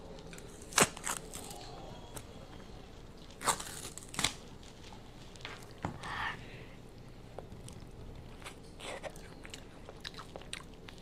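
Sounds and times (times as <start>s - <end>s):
wrapper crinkling and tearing: 0.2s - 2.2s, 3.2s - 5.5s.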